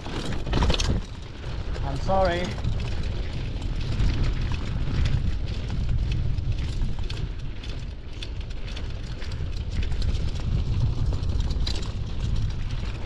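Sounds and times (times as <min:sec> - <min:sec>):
bike rattling: 0:00.0 - 0:13.0
tyres crunching over gravel: 0:00.0 - 0:13.0
wind buffeting microphone: 0:00.0 - 0:13.0.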